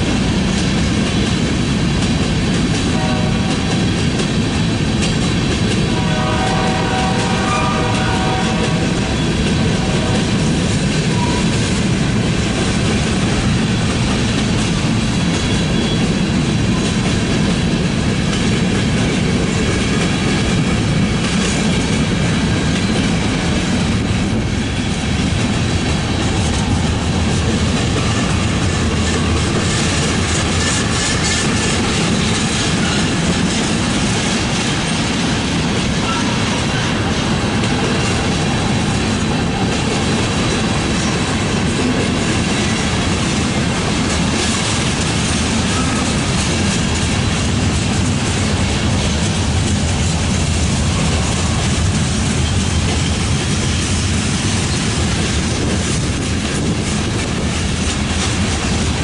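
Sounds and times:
freight cars rumbling: 0.0s - 59.0s
wheels clacking over rail joints: 0.0s - 59.0s.

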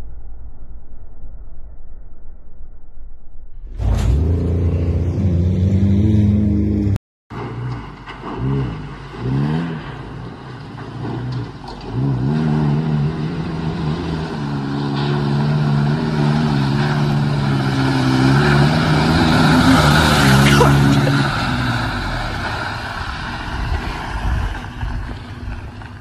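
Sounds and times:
pickup truck engine revving: 3.8s - 26.0s
truck engine running steadily: 13.4s - 26.0s.

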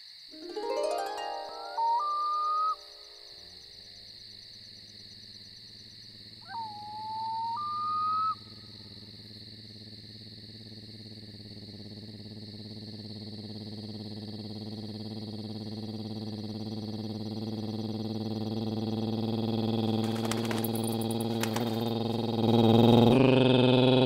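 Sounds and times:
steady high hiss: 0.4s - 4.1s
owl-like hoot: 1.4s - 3.1s, 6.4s - 8.7s, 21.4s - 24.0s.

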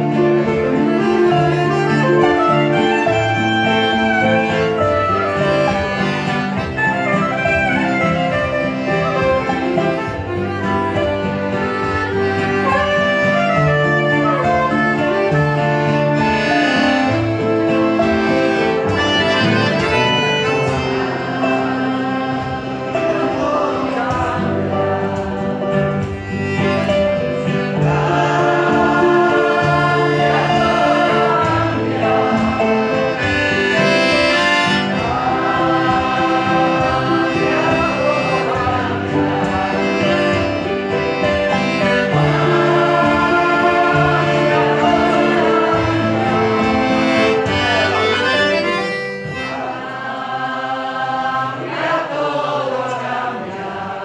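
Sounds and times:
soprano saxophone: 0.0s - 21.9s
accordion: 0.0s - 54.0s
guitar: 0.0s - 54.0s.

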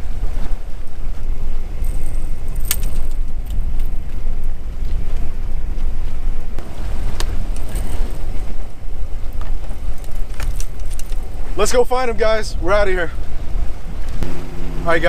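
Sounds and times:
boat engine rumble: 0.0s - 15.0s
wind on microphone: 0.0s - 15.0s
fishing rod and reel clicking: 1.8s - 3.9s, 9.4s - 11.4s.

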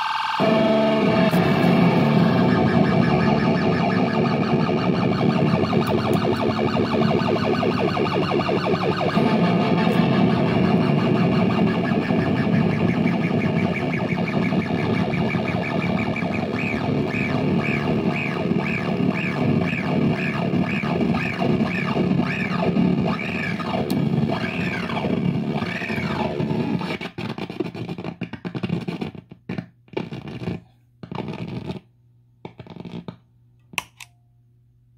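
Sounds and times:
distorted drone with pitch sweep: 0.0s - 27.1s.

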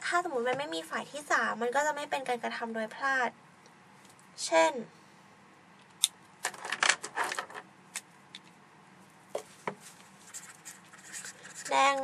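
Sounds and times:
pen clicks and rattles: 6.4s - 7.6s.

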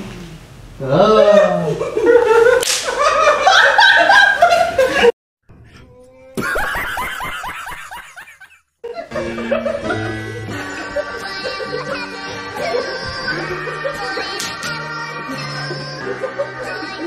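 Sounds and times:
men laughing and exclaiming: 1.2s - 5.1s, 6.4s - 10.2s, 10.8s - 14.4s
sharp smack: 2.6s - 3.0s.

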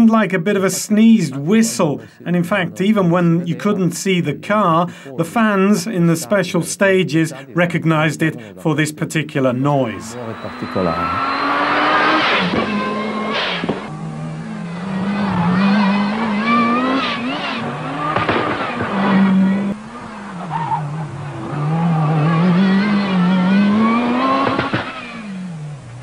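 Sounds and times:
car engine revving hard: 9.5s - 26.0s.

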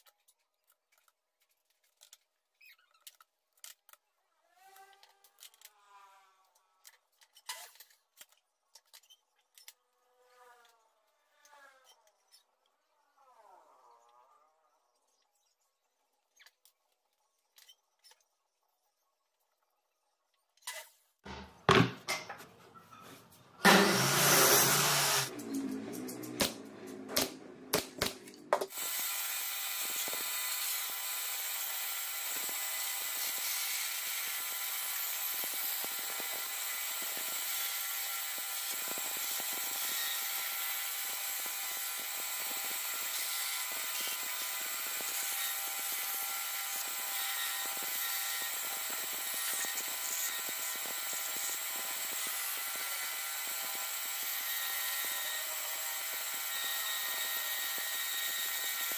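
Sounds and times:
bandsaw cutting boards: 21.2s - 58.9s.

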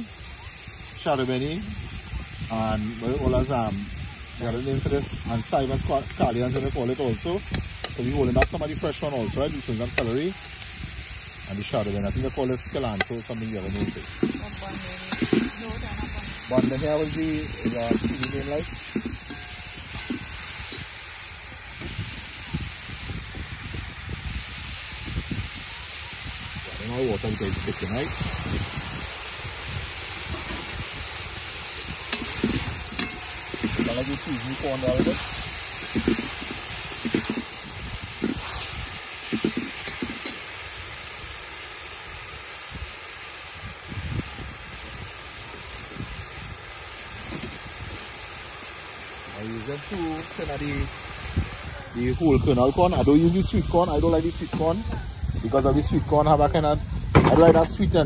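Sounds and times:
food sizzling in a metal pot: 0.0s - 58.0s
metal ladle stirring: 13.0s - 15.6s, 16.3s - 21.0s, 32.1s - 40.4s.

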